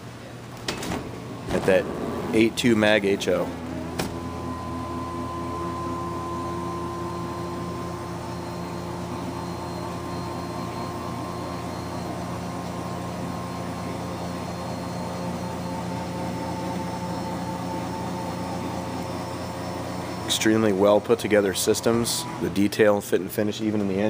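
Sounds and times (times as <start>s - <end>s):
electric motor drone: 1.8s - 8.4s.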